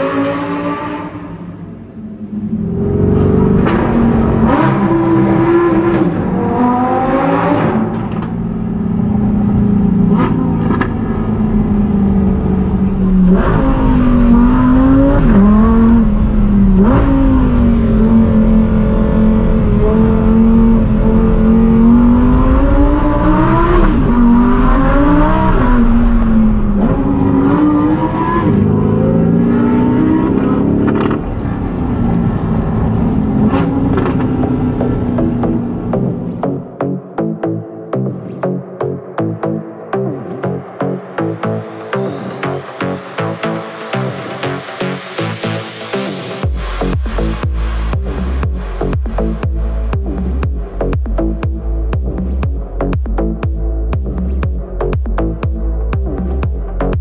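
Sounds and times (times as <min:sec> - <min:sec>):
sports car engine revving: 0:00.0 - 0:36.8.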